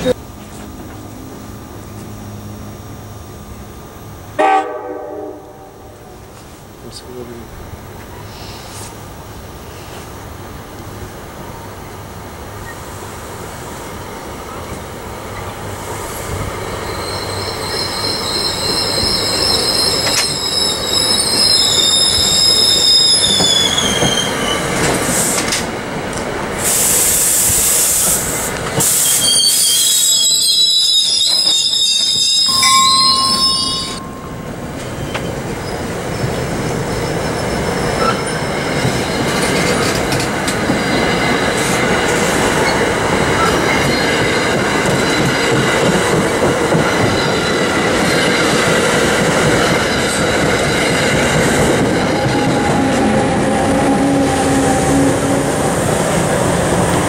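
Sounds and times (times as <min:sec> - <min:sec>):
train coaches rumbling past: 0:00.0 - 0:57.0
loud train hiss: 0:04.3 - 0:11.8, 0:12.4 - 0:36.9
train wheel squeal: 0:16.6 - 0:25.6, 0:28.8 - 0:45.8, 0:46.9 - 0:48.9, 0:49.6 - 0:55.3.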